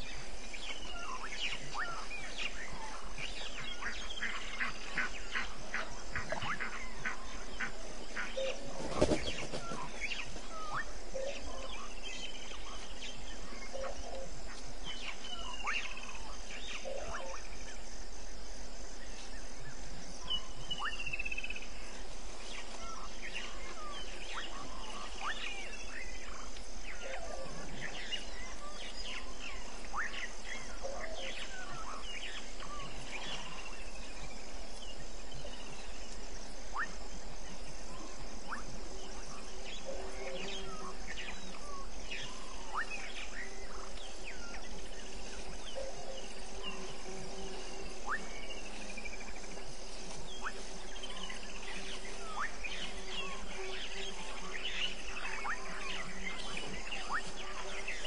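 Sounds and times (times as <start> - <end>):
high insect trill: 0.0 - 58.0.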